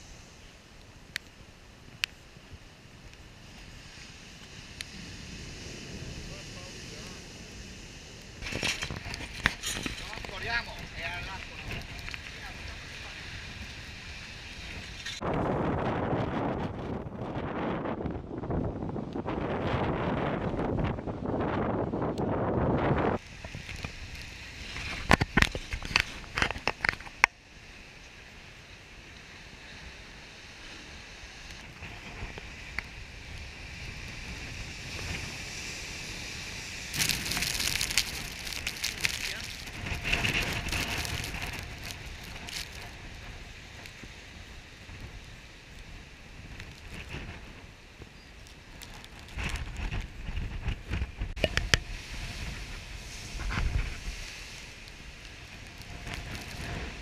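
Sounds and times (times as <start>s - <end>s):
crackling noise: 0.0s - 28.5s, 30.6s - 57.0s
wind buffeting the microphone: 1.9s - 27.3s, 31.4s - 57.0s
surf breaking on rocks: 33.8s - 44.0s.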